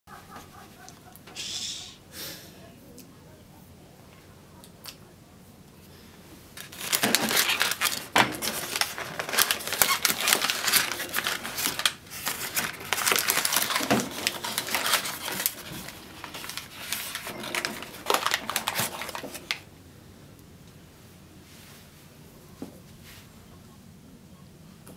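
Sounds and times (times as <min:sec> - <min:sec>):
newspaper crinkling and rustling: 0:06.5 - 0:19.7.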